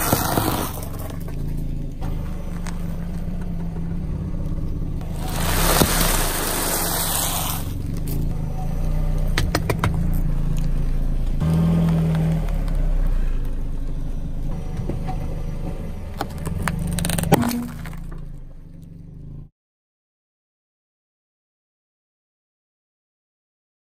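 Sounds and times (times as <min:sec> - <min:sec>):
tyre crunching items on asphalt: 0:00.0 - 0:10.8, 0:11.4 - 0:19.0
car engine running: 0:00.0 - 0:19.5.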